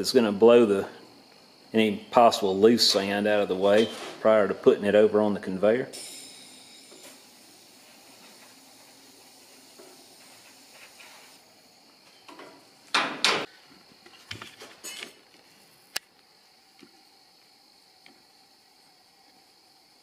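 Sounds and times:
air blasts blowing sand: 0:05.5 - 0:11.5.

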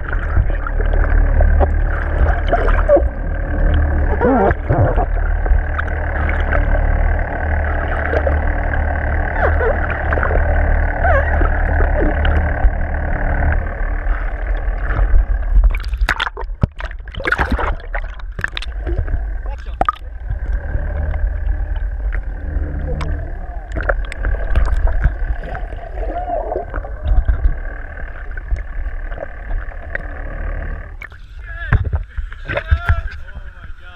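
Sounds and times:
short wavering tone: 0:00.0 - 0:15.9, 0:19.8 - 0:27.6
sharp clicks and crackles: 0:00.0 - 0:25.9, 0:26.5 - 0:33.3
boat engine rumble: 0:00.0 - 0:33.9
water noise: 0:00.0 - 0:33.9.

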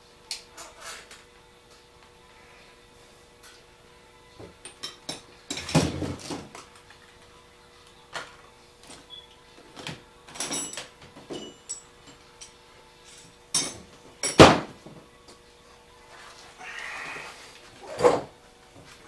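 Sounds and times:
hand tools clanking on metal: 0:10.3 - 0:12.5, 0:13.1 - 0:14.6.

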